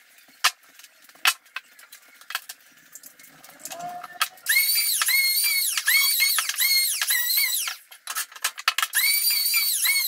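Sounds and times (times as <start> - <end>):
power drill whining in pulses: 9.0 - 10.0.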